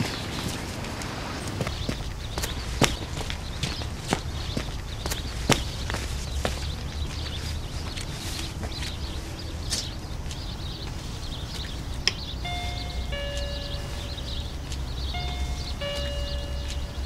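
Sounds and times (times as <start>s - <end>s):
two-tone electronic doorbell chime: 12.4s - 17.0s.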